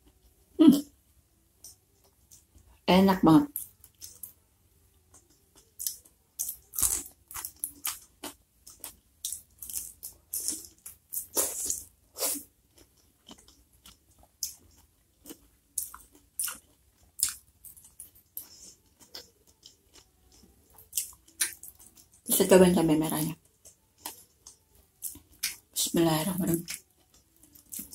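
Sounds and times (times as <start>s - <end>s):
close chewing sounds: 3.5s - 22.3s, 23.4s - 27.9s.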